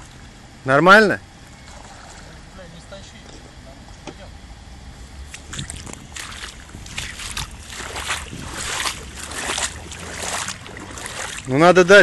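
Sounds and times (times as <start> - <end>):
water sloshing around wading legs: 1.5 - 2.4, 5.2 - 12.0.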